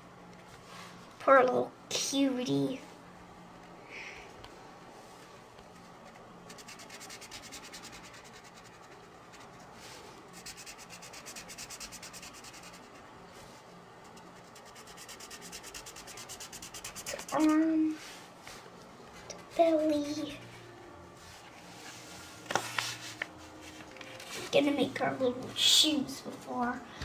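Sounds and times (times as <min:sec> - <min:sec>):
marker scribbling on paper: 0:06.5 - 0:09.7, 0:10.4 - 0:13.0, 0:14.0 - 0:17.6.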